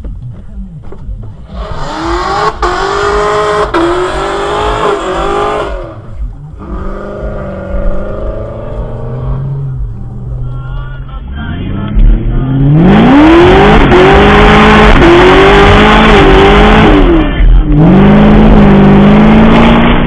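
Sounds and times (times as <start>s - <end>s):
car engine accelerating hard: 1.2s - 10.6s, 11.5s - 20.0s.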